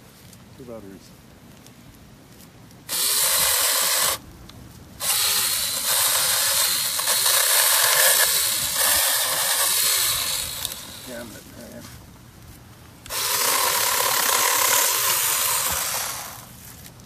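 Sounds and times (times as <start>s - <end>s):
mini chainsaw cutting branch: 2.9s - 4.2s, 5.0s - 11.4s, 13.1s - 16.5s.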